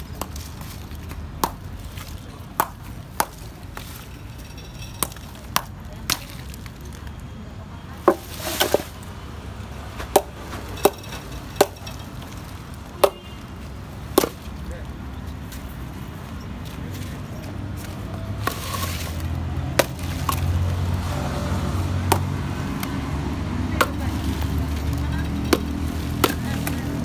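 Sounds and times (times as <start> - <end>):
hammer chopping ice: 14.2 - 14.4, 19.7 - 20.5, 25.4 - 26.9.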